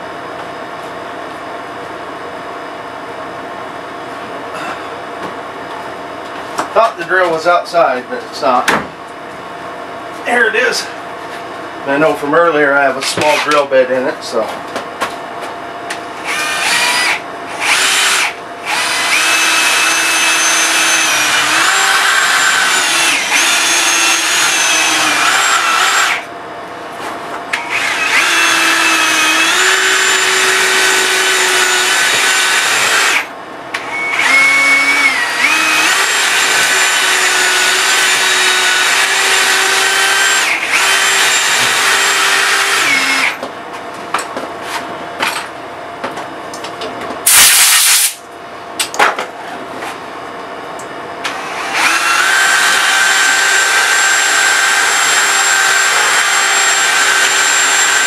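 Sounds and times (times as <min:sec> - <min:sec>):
cordless drill motor whining: 0:16.2 - 0:26.3, 0:27.5 - 0:43.4, 0:51.2 - 0:58.0.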